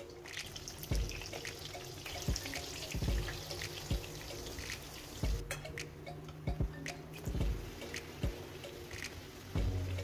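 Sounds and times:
dough sizzling in hot oil: 0.0 - 5.4.

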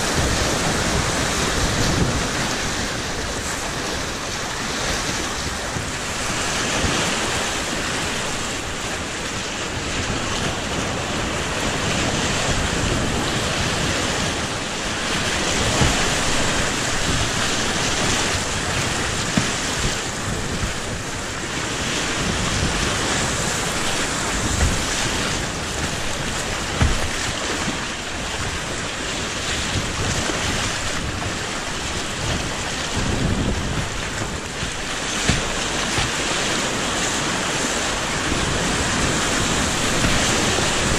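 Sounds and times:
low splashes and thumps: 0.0 - 40.9
whitewater roaring: 0.0 - 40.9.

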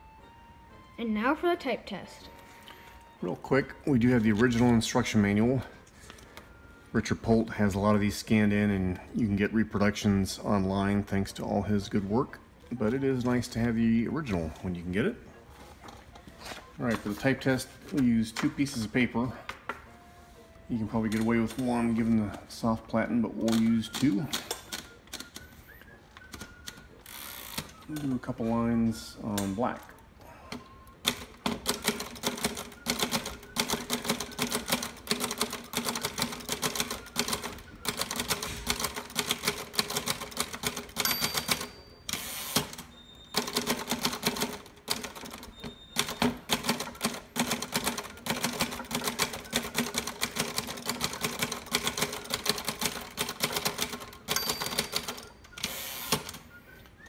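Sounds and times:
typewriter carriage return: 20.8 - 22.8, 23.4 - 25.5, 30.5 - 57.0
typewriter margin bell ring: 38.1 - 56.4
typewriter keystroke clacks: 43.4 - 56.4.

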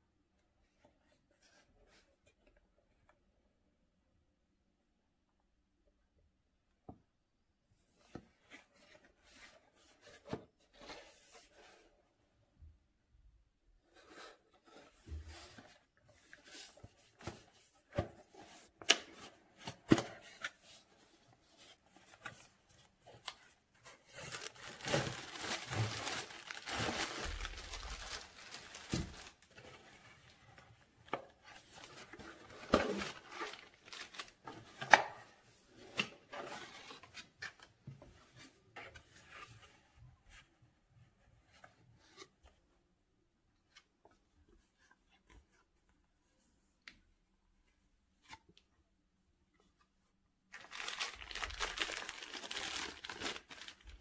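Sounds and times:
packaging rustling and crinkling: 22.0 - 30.4, 31.6 - 34.5, 50.5 - 54.0
packaging tearing: 24.2 - 29.4, 50.6 - 54.0.

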